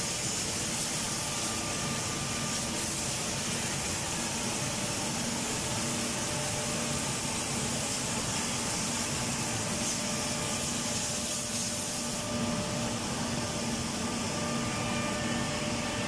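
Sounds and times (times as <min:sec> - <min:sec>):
machine mechanical hiss: 0:00.0 - 0:16.0
low machine hum: 0:12.0 - 0:16.0.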